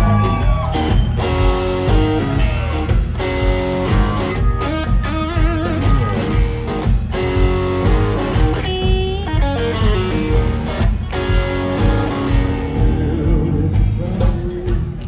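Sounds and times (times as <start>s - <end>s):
bass: 0.0s - 15.0s
drums: 0.0s - 15.0s
electric guitar lead: 0.0s - 15.0s.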